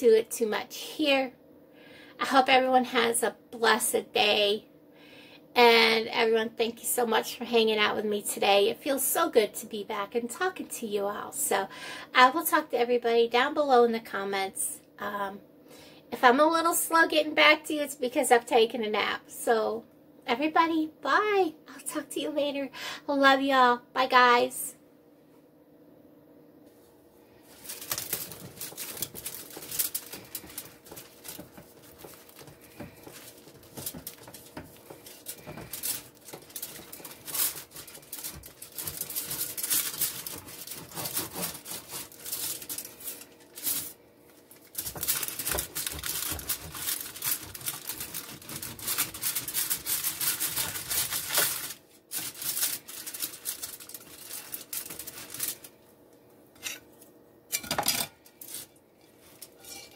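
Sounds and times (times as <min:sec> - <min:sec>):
aluminium foil crinkling: 0:27.4 - 0:55.9, 0:58.2 - 0:59.9
pizza cutter scraping: 0:27.6 - 0:43.9, 0:44.7 - 0:55.6, 0:58.4 - 0:59.9.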